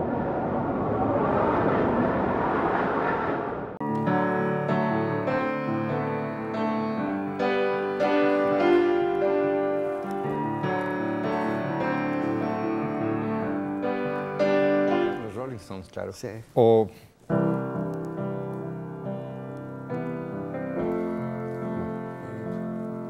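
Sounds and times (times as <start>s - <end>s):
whoosh: 0.0s - 3.8s
grand piano playing: 3.8s - 16.2s, 17.2s - 23.0s.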